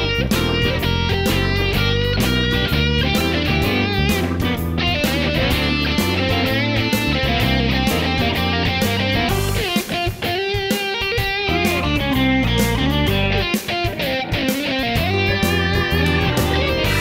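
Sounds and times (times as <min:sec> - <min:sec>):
electric guitar music over a beat: 0:00.0 - 0:17.0.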